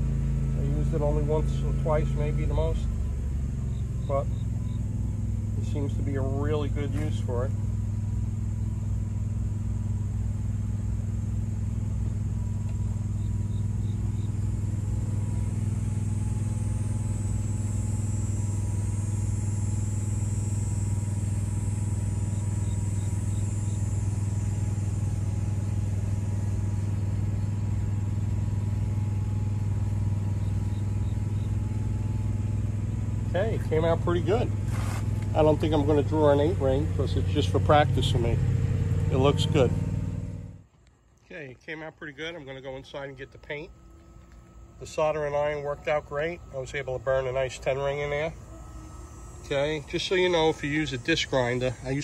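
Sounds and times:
low machine hum: 0.0s - 52.0s.

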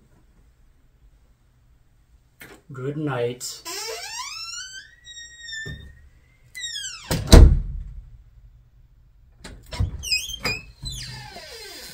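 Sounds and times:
door hinge creaking: 3.6s - 7.4s, 9.4s - 11.9s
door slamming: 6.7s - 8.0s.

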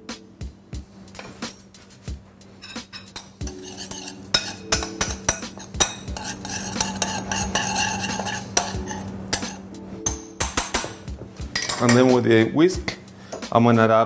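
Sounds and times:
fork scraping a ceramic bowl: 2.6s - 9.6s.

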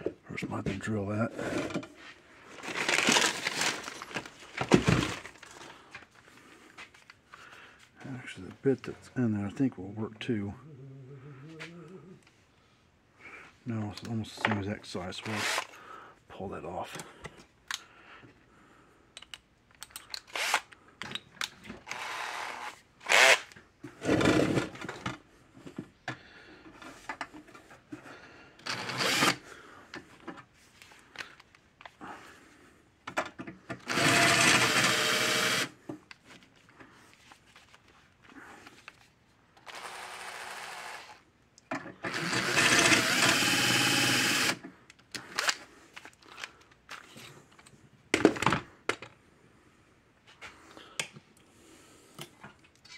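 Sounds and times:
cordless drill drilling metal: 15.3s - 15.7s, 20.3s - 20.6s, 21.9s - 23.5s, 28.6s - 29.4s, 33.8s - 35.8s, 39.6s - 41.2s, 42.0s - 44.6s.

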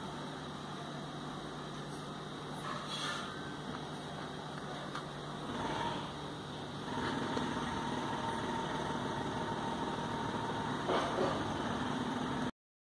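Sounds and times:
mechanical hum: 0.0s - 12.5s.

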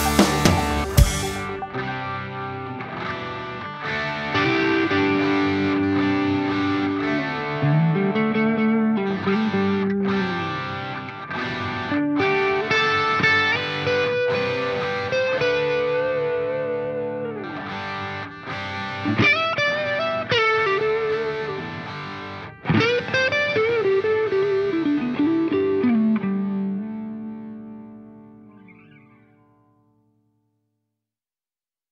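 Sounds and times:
distorted electric guitar lead: 0.0s - 29.6s.

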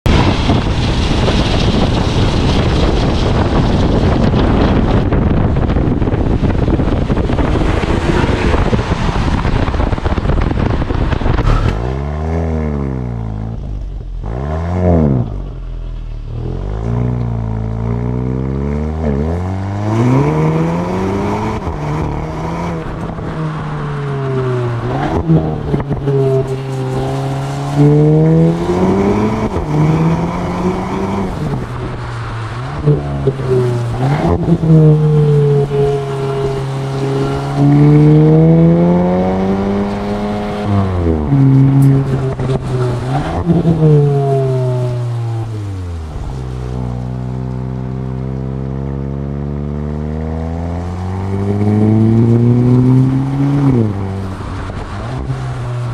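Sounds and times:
car engine revving: 0.0s - 55.9s.

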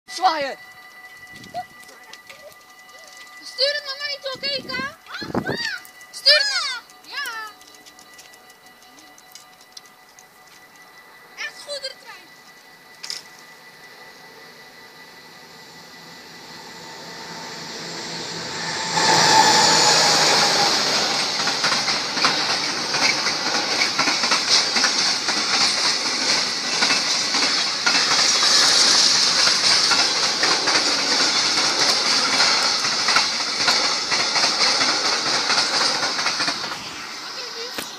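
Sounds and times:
freight train passing: 0.1s - 37.9s
train wheels clattering on rails: 15.0s - 37.9s.

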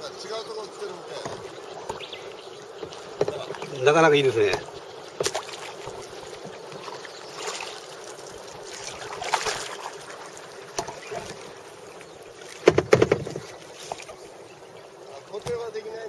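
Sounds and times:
steady hiss: 0.0s - 16.0s
paddles splashing in water: 0.2s - 16.0s
sharp knocks: 2.8s - 3.7s, 12.6s - 13.5s.

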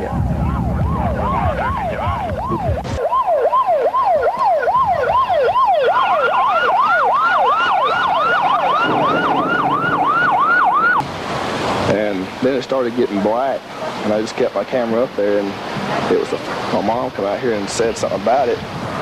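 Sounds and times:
electronic sirens yelping: 0.0s - 11.1s
higher-pitched siren: 0.0s - 11.1s.

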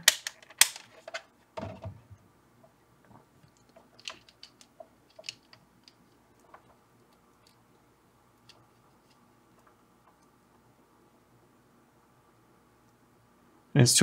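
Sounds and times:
faint clicks and taps: 8.4s - 10.6s.

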